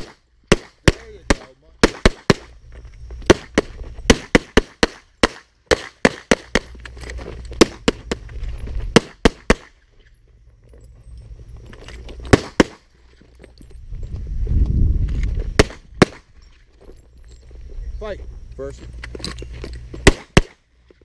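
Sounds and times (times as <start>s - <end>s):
pistol shots: 0.0s - 2.5s, 3.3s - 6.7s, 8.9s - 9.8s, 12.3s - 12.8s, 15.6s - 16.3s, 20.0s - 20.6s.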